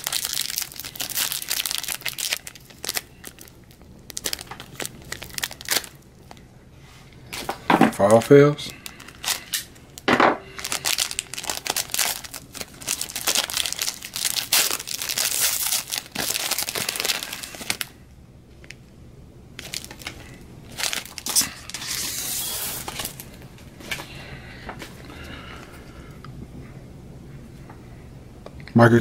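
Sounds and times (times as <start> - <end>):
foil wrapper crinkling and tearing: 0.0 - 6.4, 7.3 - 18.0, 19.6 - 23.4.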